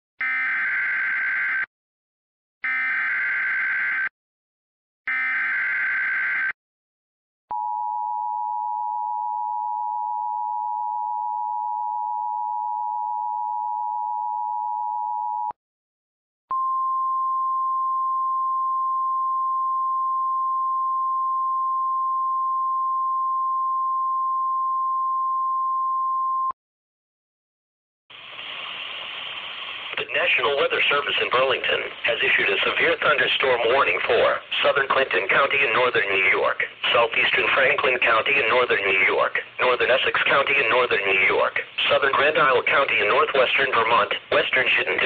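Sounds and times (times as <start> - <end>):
radio static: 29.9 - 45.0.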